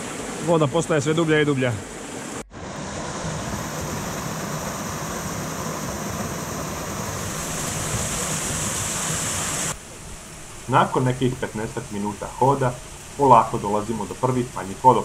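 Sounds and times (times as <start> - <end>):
waterfall splashing into pool: 2.5 - 15.0.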